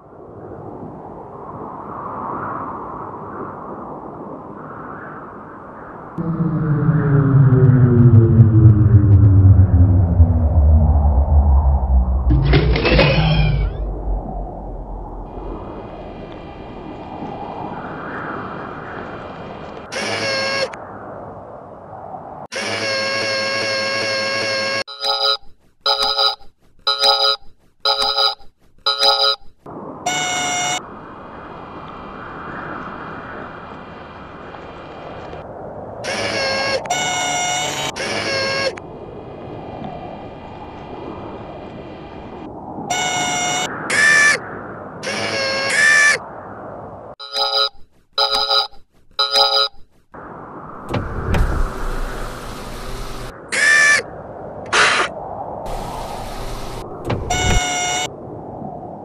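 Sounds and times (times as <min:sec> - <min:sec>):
click with low boom: 0:06.2 - 0:16.4
electronic alarm beeps: 0:24.9 - 0:29.5, 0:47.2 - 0:49.8.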